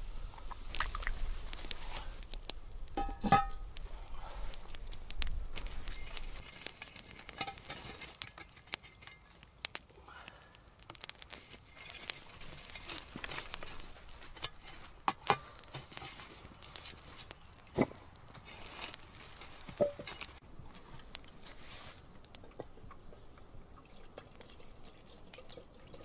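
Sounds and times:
spade scraping coals: 0.0s - 24.4s
coals clinking and crackling: 0.0s - 26.0s.

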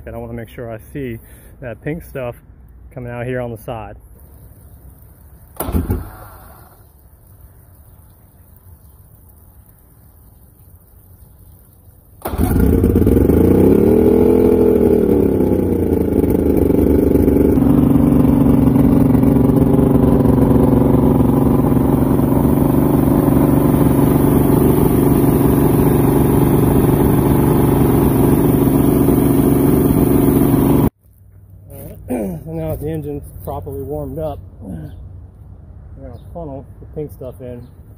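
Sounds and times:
outboard engine revving and idling: 12.2s - 30.9s.

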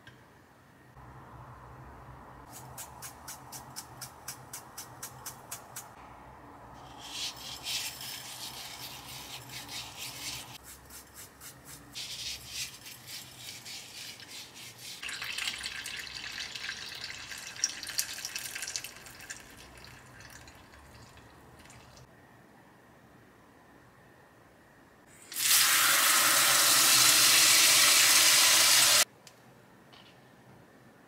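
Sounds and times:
gritty wet rubbing with salt: 6.8s - 15.1s.

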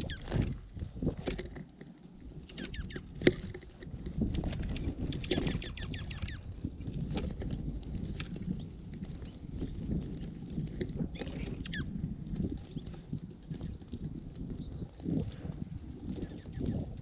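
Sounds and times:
small birds chirping: 0.0s - 0.5s, 2.3s - 6.5s, 11.1s - 12.0s, 14.5s - 15.0s, 16.1s - 17.0s
wind rumble on microphone: 0.0s - 17.0s
beaks pecking seed: 2.4s - 6.5s, 11.1s - 11.9s.

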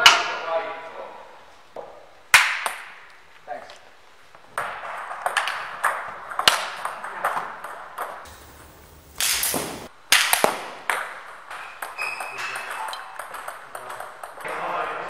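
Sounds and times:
table tennis balls clicking: 4.6s - 14.7s
short burst of noise: 8.3s - 9.9s.

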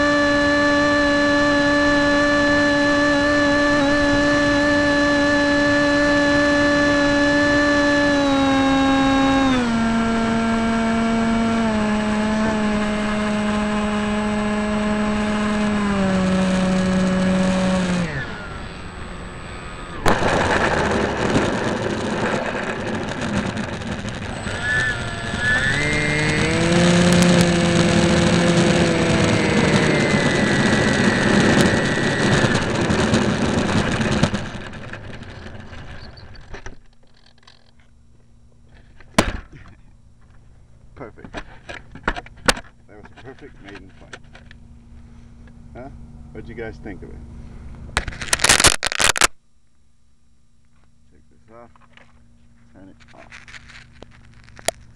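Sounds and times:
landing gear rolling on runway: 0.0s - 37.8s
model airplane motor droning: 0.0s - 37.9s.

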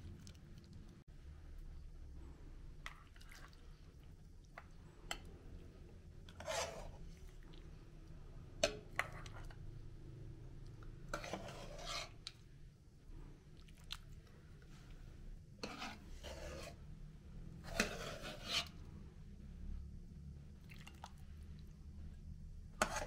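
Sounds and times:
metal ladle scraping a pot: 6.2s - 7.4s, 11.1s - 12.4s, 15.6s - 16.8s, 17.6s - 18.8s, 22.8s - 23.0s.

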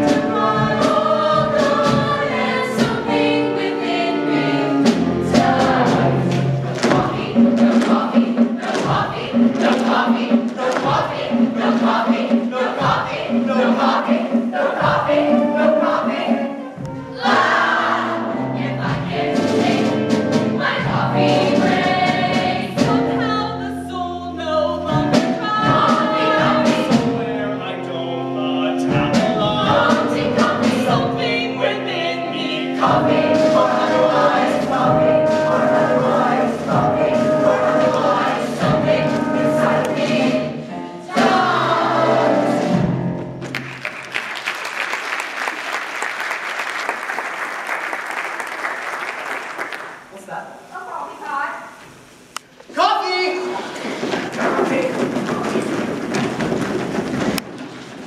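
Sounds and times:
ensemble cast singing: 0.0s - 42.9s
instrumental accompaniment: 0.0s - 44.5s
audience applause: 43.5s - 50.1s.

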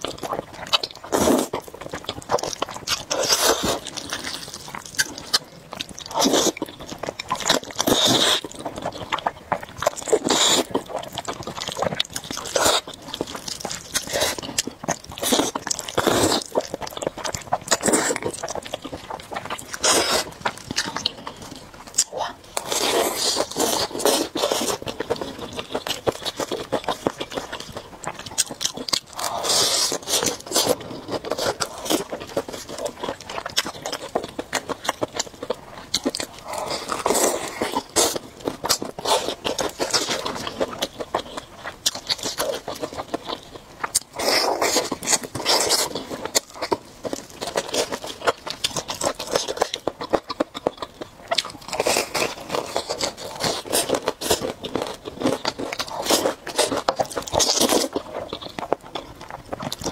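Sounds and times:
crunching fried chicken: 0.0s - 59.9s.

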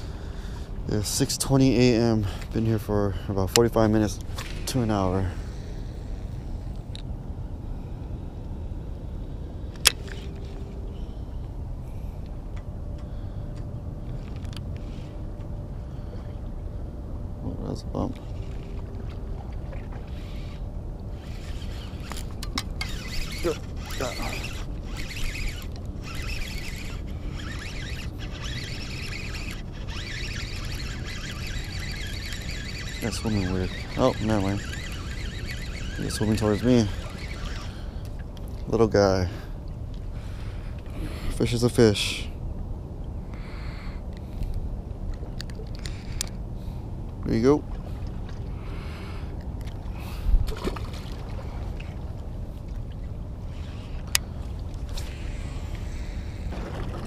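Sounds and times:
steady low rumble: 0.0s - 57.0s
fishing reel cranking: 20.0s - 38.2s, 45.4s - 46.4s, 53.4s - 56.8s.

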